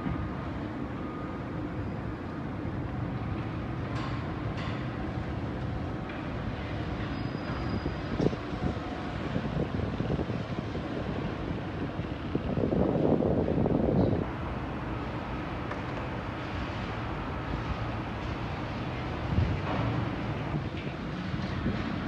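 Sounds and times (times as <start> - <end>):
wind buffeting microphone: 6.0 - 14.6, 15.2 - 22.0.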